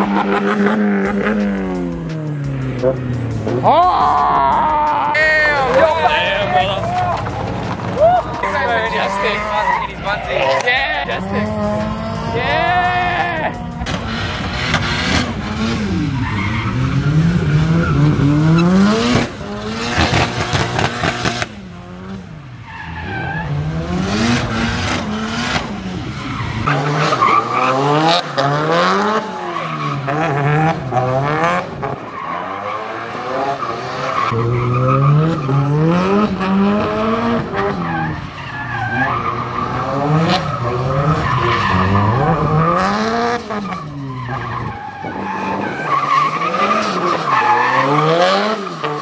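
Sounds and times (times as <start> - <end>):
car engine revving: 0.0 - 49.0
tyres skidding: 0.0 - 49.0.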